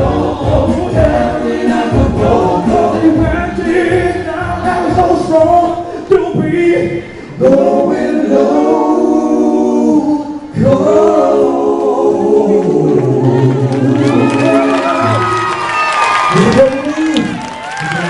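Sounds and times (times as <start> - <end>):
vocal group singing in harmony: 0.0 - 15.8.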